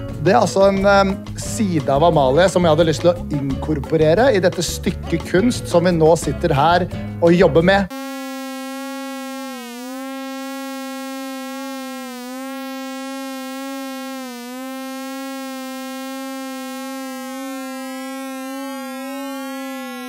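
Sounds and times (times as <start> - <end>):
buzzy synthesizer note: 7.8 - 20.0
rising synth sweeps: 7.9 - 20.0.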